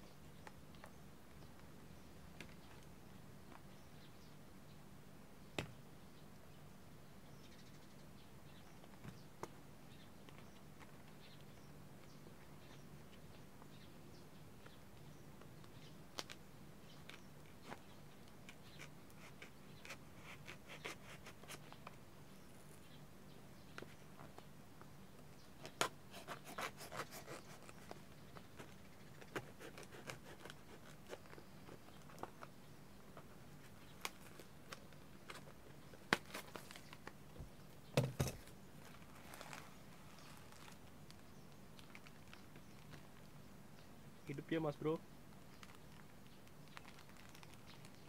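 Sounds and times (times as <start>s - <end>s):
knife cutting tape and cardboard: 18.4s - 21.8s, 25.6s - 32.4s.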